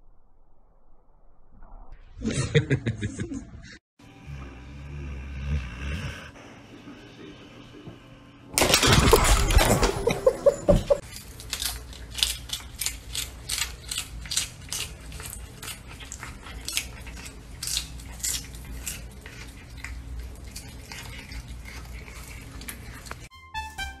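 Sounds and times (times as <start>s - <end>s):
cat chewing crisp vegetable: 11.0s - 23.3s.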